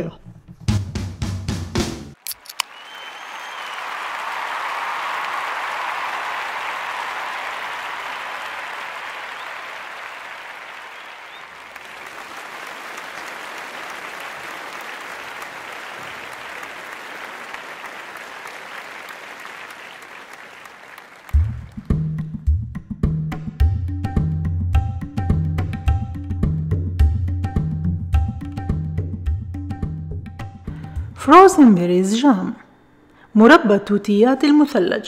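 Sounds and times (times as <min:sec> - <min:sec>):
audience applause: 0:02.4 - 0:21.8.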